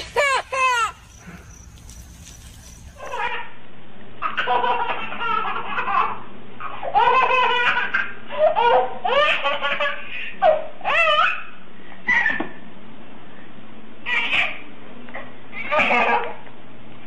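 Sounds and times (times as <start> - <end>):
baby laughing: 0.0 - 1.2, 3.0 - 3.4, 4.2 - 11.4.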